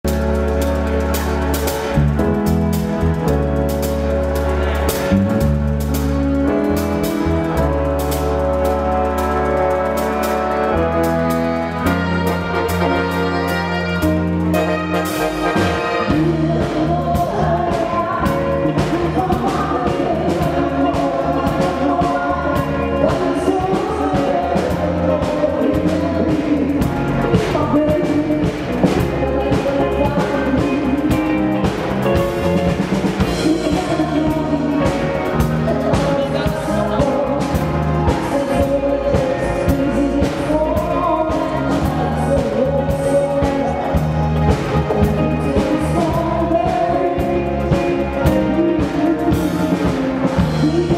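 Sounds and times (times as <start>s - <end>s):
drum kit beat: 0.0s - 50.9s
electric bass: 0.0s - 50.9s
electric guitar: 0.0s - 50.9s
woman singing lead: 8.4s - 50.9s
man singing: 33.4s - 50.9s.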